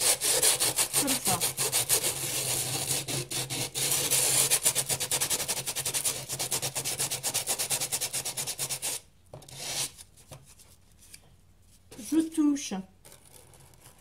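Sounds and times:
sandpaper rubbing on cardboard: 0.0 - 10.0.

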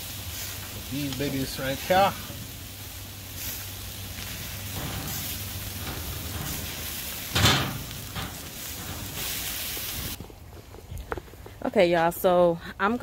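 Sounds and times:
meat sizzling on a grill: 0.0 - 10.2
loud thump: 4.8 - 9.2.

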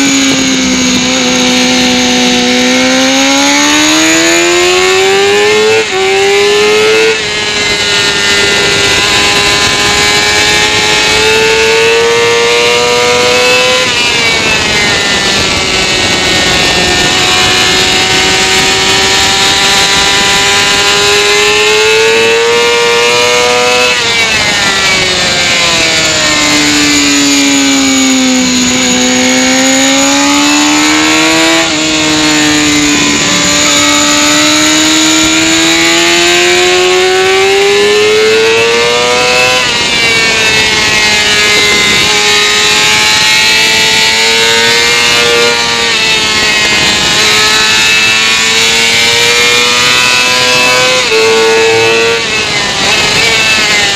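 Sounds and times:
motorcycle engine running hard: 0.0 - 53.9
wind rush: 23.8 - 53.9.

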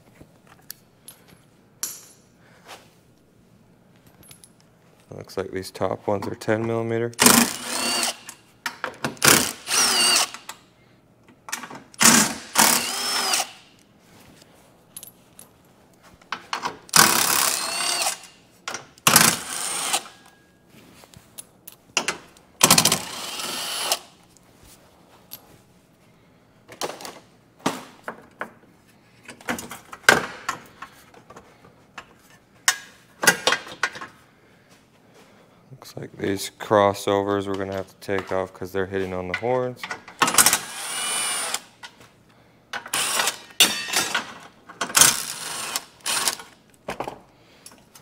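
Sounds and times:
cordless power tool spinning: 7.2 - 8.3, 9.2 - 10.5, 12.0 - 13.7, 16.9 - 18.4, 19.1 - 20.1, 22.6 - 24.1, 40.4 - 41.7, 42.9 - 43.5, 45.0 - 46.4.

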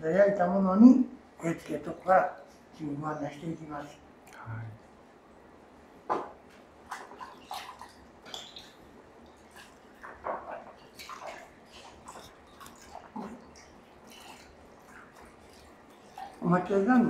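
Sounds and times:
sponge splashing in bucket: 6.6 - 17.0.

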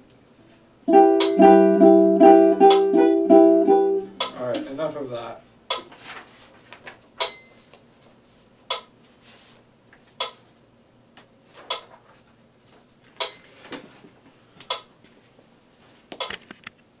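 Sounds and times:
metronome ticking: 0.9 - 4.5.

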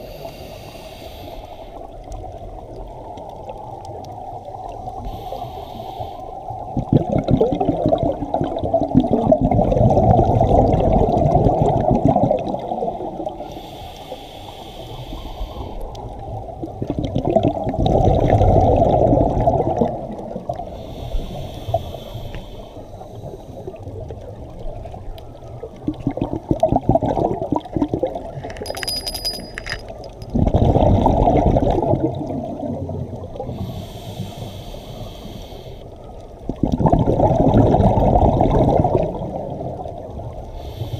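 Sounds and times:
diver breathing through regulator: 0.0 - 1.8, 5.0 - 6.3, 13.4 - 15.8, 20.7 - 23.6, 33.5 - 35.9
bubbling exhaled air: 5.0 - 13.8, 30.2 - 35.7, 36.4 - 39.8.

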